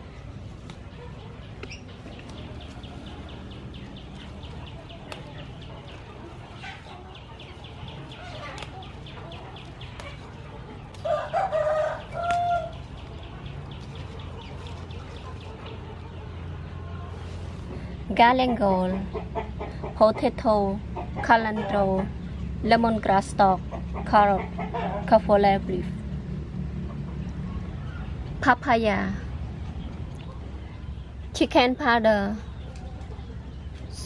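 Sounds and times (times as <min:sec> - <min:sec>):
rooster crowing: 0:11.0 - 0:12.8.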